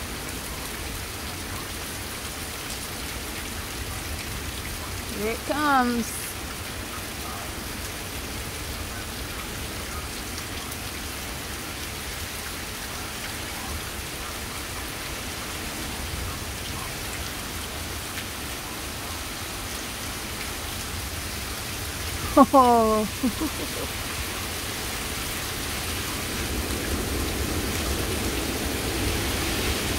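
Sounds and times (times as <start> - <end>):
heavy rain pouring: 0.0 - 29.9.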